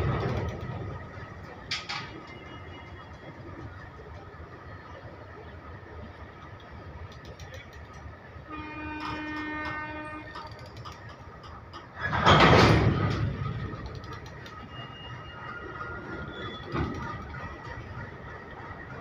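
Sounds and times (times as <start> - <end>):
wheels and couplings clanking: 0.0 - 5.2, 6.0 - 19.0
goods train wagons rolling: 0.0 - 19.0
train horn: 8.4 - 10.4.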